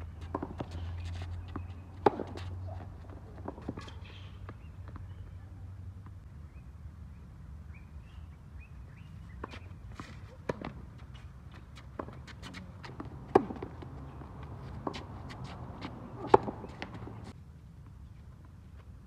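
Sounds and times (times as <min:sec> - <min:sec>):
footsteps on court: 0:00.0 - 0:05.3, 0:09.4 - 0:18.9
tennis ball bouncing: 0:00.1 - 0:05.2, 0:09.3 - 0:17.3
racket hitting tennis ball: 0:00.2 - 0:04.4, 0:09.4 - 0:17.3.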